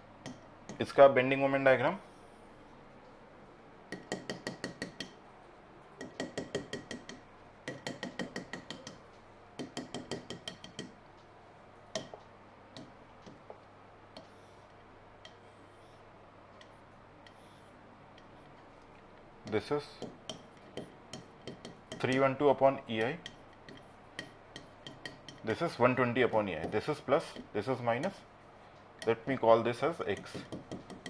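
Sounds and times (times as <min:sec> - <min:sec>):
chalk tapping on blackboard: 0:03.9 - 0:05.2, 0:06.0 - 0:09.0, 0:09.6 - 0:11.0, 0:19.4 - 0:22.3, 0:23.0 - 0:27.6, 0:30.0 - 0:31.0.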